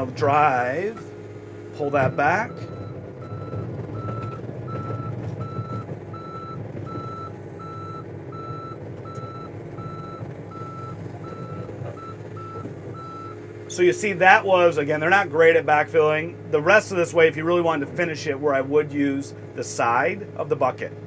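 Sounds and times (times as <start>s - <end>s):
diesel engine running: 0.0s - 21.0s
backup alarm beeping: 1.8s - 13.4s.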